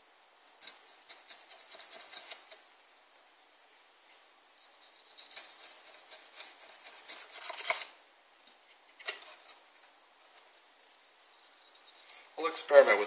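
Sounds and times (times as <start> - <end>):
hand drill rasping and clicking: 5.1 - 7.9.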